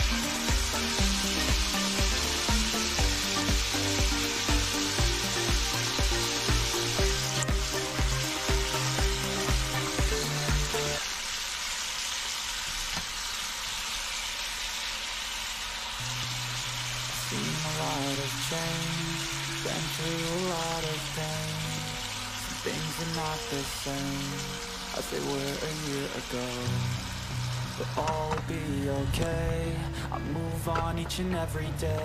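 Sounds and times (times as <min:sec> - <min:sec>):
background music with a beat: 0:00.0 - 0:11.0
food sizzling in a pan: 0:00.0 - 0:28.5.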